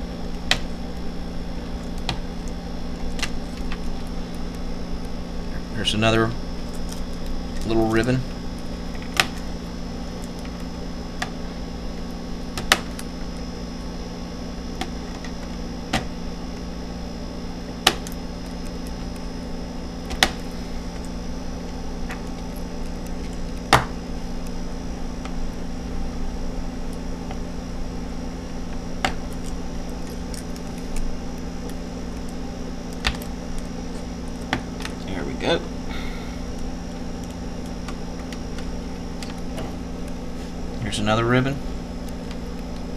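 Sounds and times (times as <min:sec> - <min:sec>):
steady low hum: 0:00.0 - 0:42.9.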